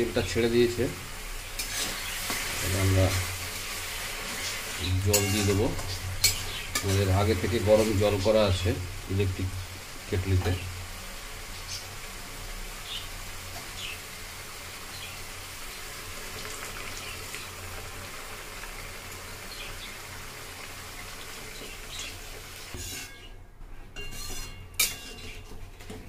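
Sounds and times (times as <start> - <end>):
masala sizzling in a metal pan: 0.0 - 26.0
metal spatula scraping a pan: 1.5 - 8.3, 22.6 - 23.4, 24.0 - 25.9
sharp metal clank: 5.1 - 7.1.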